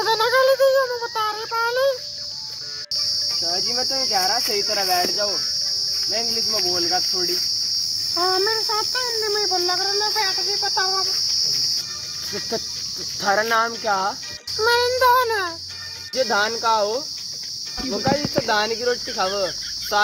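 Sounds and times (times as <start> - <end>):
high-pitched insect chirring: 0.0 - 20.0
person's voice: 17.8 - 20.0.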